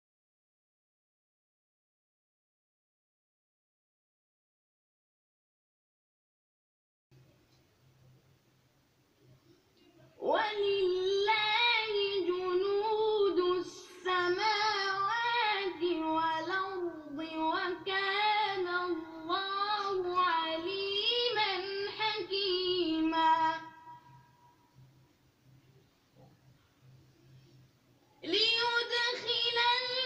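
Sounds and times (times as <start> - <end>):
boy reciting melodically: 10.2 - 24.0, 28.2 - 30.0.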